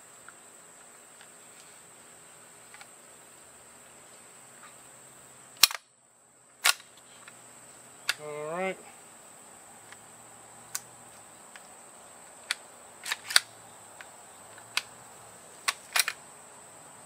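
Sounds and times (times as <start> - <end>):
metallic clicks of pistol assembly: 5.6 - 5.8, 12.4 - 14.9, 15.6 - 16.2.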